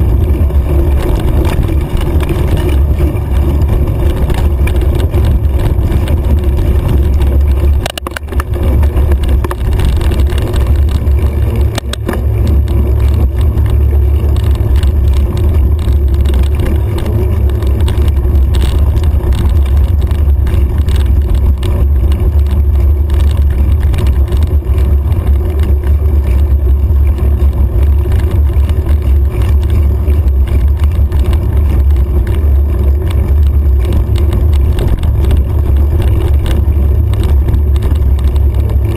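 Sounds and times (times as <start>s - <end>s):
tyre noise on dirt road: 0.0s - 38.9s
wind buffeting microphone: 0.0s - 38.9s.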